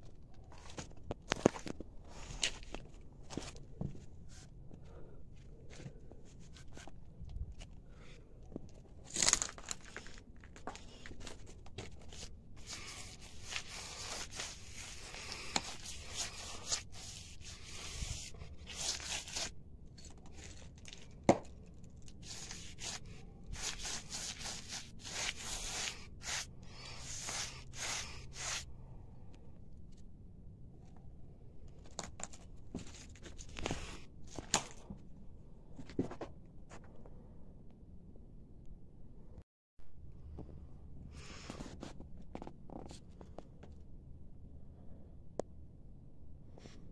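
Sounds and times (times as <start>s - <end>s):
paint applicator scraping rough wall: 12.1s - 20.8s, 22.2s - 28.6s.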